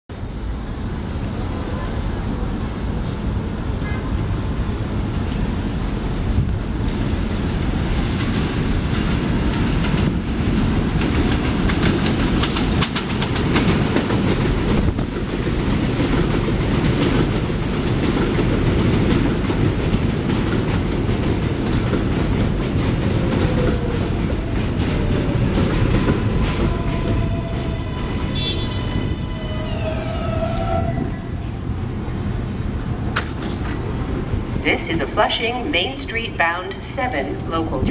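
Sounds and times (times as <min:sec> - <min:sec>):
train wheels rumbling on rail: 0:00.1 - 0:37.9
wheels clicking over rail joints: 0:09.0 - 0:27.6.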